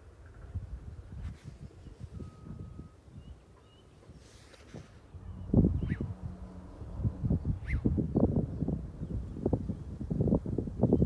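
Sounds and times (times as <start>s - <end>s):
wind rumble on microphone: 0.0s - 11.0s
faint high bird chirps: 1.8s - 4.1s, 5.1s - 6.2s, 7.4s - 8.3s
brief rustle: 4.0s - 5.1s.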